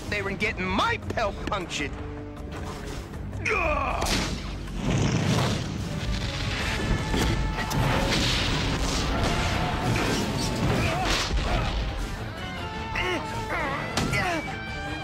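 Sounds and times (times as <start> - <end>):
action music: 0.0 - 15.0
blasts and booms: 4.0 - 12.1.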